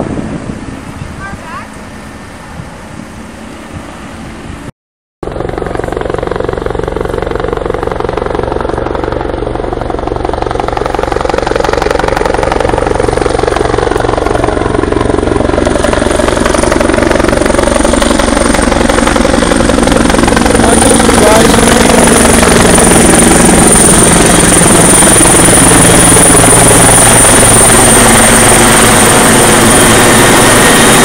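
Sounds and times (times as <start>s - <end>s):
helicopter flying overhead: 0.0s - 31.0s.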